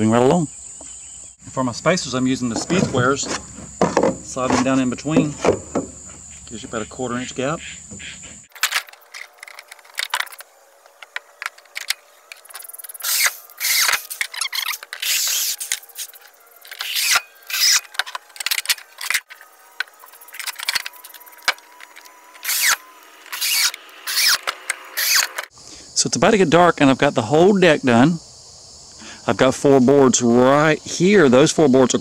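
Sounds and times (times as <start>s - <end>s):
boards knocking into place: 2.6s - 6.2s
power drill driving screws: 8.5s - 25.5s.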